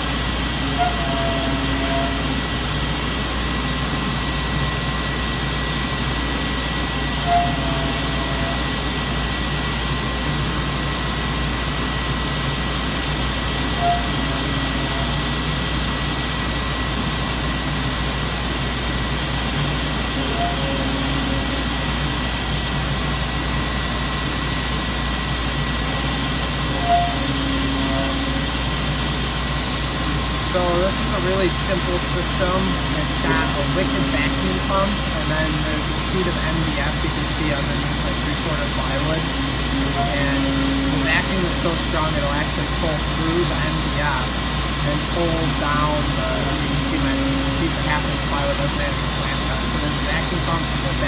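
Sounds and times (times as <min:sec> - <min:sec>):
high whine: 0:00.0 - 0:51.0
vacuum pump rushing: 0:10.8 - 0:51.0
short higher note: 0:20.2 - 0:21.9
router milling wood: 0:26.0 - 0:51.0.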